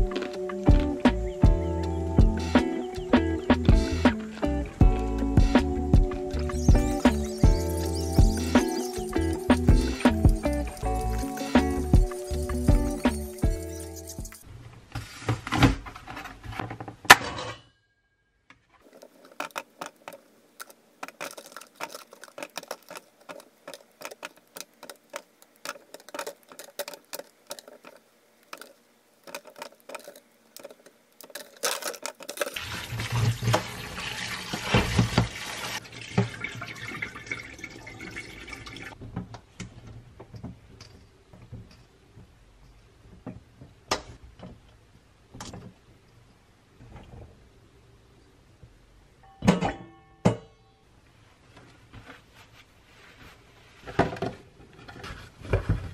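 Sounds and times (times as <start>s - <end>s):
plastic clamshell rattling: 18.8s - 32.6s
tap water running into bowl: 32.4s - 39.0s.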